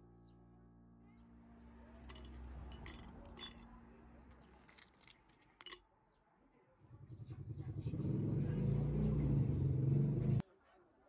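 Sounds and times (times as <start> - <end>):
vehicle engine running: 7.1 - 10.4.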